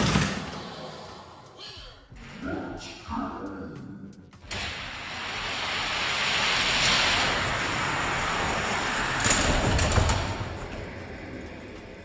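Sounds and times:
toy cars rolling on track: 4.5 - 12.0.

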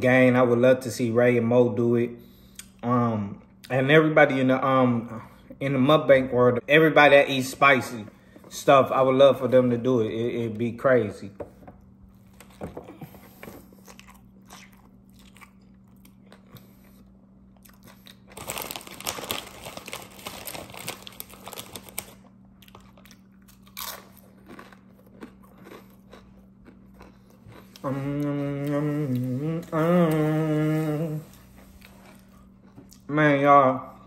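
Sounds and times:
person biting and chewing: 13.6 - 29.3
closed-mouth mmm hums: 25.8 - 33.1.

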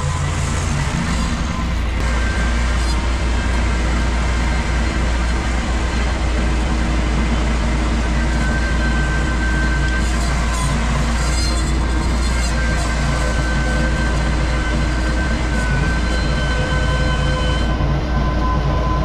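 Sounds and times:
mower blades cutting grass: 0.0 - 17.8
tractor engine hum: 0.0 - 19.0.

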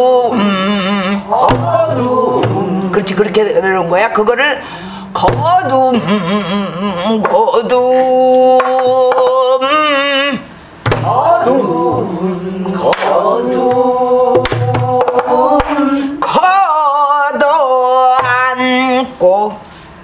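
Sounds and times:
person singing with wide vibrato: 0.0 - 3.5, 4.6 - 20.0
sharp knocks: 1.4 - 2.6, 5.2 - 5.7, 10.8 - 11.2.

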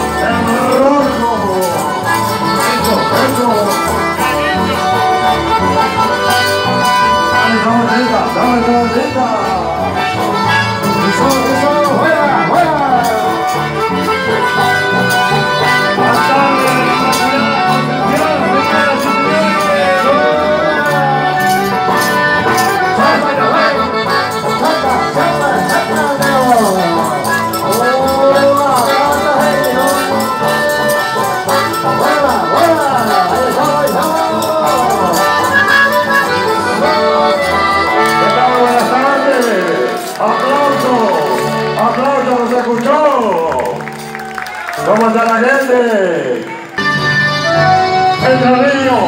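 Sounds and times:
bass: 0.0 - 49.0
guitar: 0.0 - 49.0
live band with accordions: 0.0 - 49.0.

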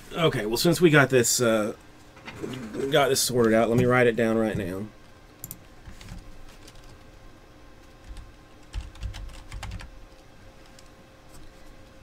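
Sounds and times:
typing on a keyboard: 8.0 - 9.9.

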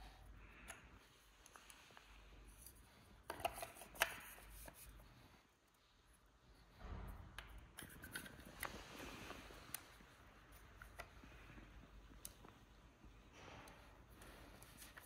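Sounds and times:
plastic parts clicking: 3.2 - 4.8.

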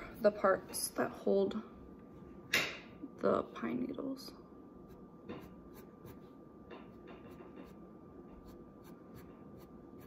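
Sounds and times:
faint high hum: 0.0 - 10.0
pencil scratching on paper: 4.9 - 6.4, 7.3 - 10.0.

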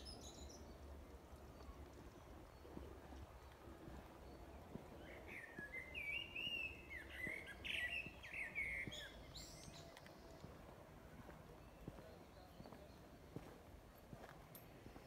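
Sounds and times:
songbird warbling and chirping: 0.0 - 10.5
faint outdoor background noise: 0.0 - 15.0.

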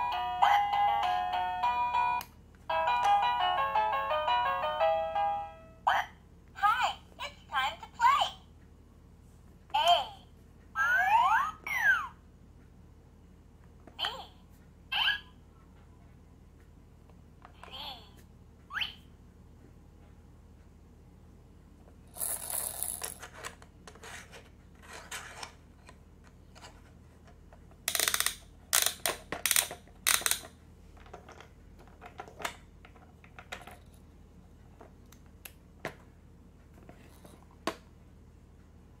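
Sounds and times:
toy buttons clicking and rattling: 27.9 - 30.5
toy lid snapping shut: 27.9 - 30.5.

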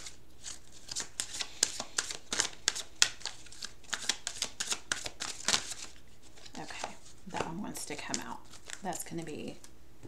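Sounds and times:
cards being shuffled by hand: 0.0 - 9.8.

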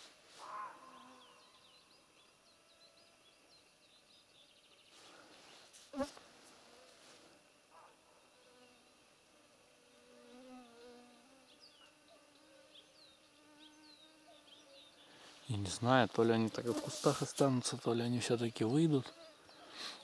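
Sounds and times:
insects buzzing: 0.0 - 20.0
faint bird chirps: 0.4 - 6.1, 9.9 - 15.8, 18.3 - 20.0.

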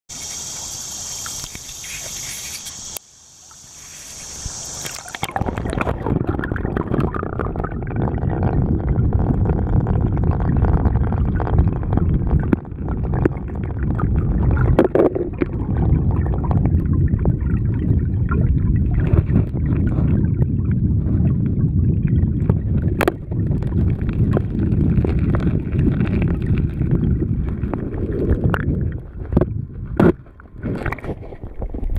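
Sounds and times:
underwater current rumble: 3.6 - 31.9.

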